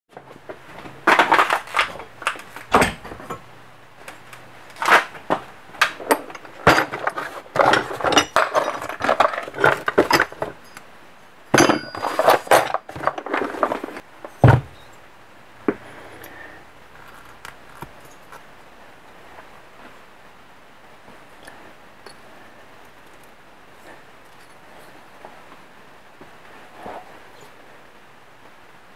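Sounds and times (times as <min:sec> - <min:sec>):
metal parts clattering in plastic bin: 0:00.7 - 0:03.4, 0:04.7 - 0:10.8, 0:11.5 - 0:14.8
heavy thump: 0:14.4 - 0:14.8.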